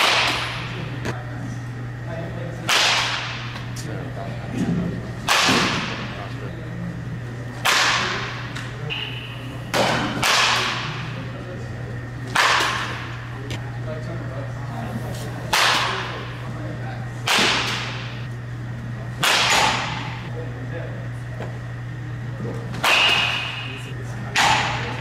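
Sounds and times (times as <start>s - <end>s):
steady low hum: 0.0s - 25.0s
baseball bat cracking balls: 5.2s - 6.1s, 9.7s - 11.0s, 17.2s - 18.2s.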